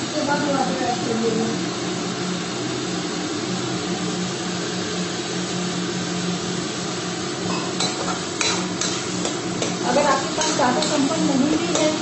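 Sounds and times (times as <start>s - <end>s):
gas stove hissing: 0.0s - 12.0s.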